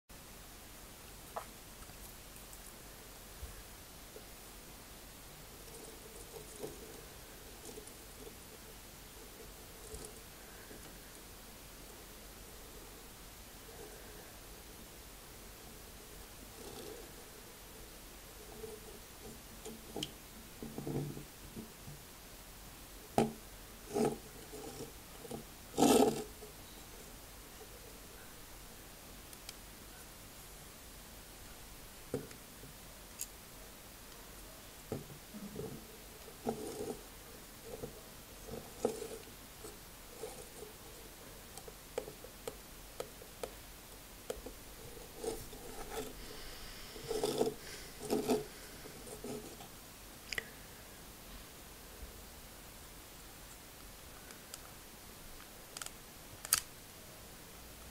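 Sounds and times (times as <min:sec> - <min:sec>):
plastic bricks rubbing: 0:05.4 - 0:11.3, 0:16.4 - 0:17.8, 0:23.2 - 0:26.6, 0:34.9 - 0:43.6, 0:44.3 - 0:49.7
plastic bricks clicking: 0:55.8 - 0:56.7.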